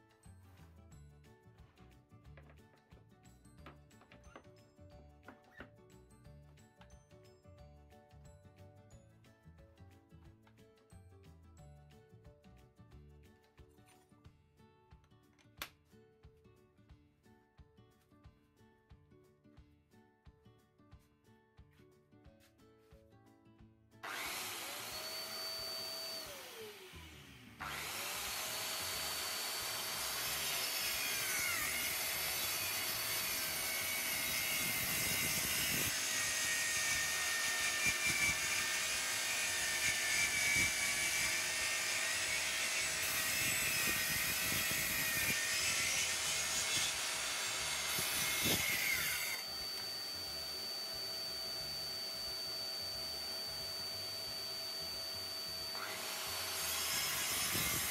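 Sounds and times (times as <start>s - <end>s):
track saw cutting wood: 24.0s - 57.9s
dust extractor humming: 24.1s - 31.3s, 49.3s - 56.9s.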